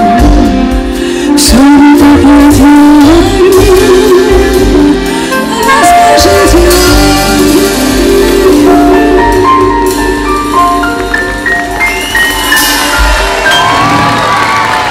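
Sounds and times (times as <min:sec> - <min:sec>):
double bass: 0:00.0 - 0:12.8
live band playing: 0:00.0 - 0:14.9
saxophone: 0:00.0 - 0:14.9.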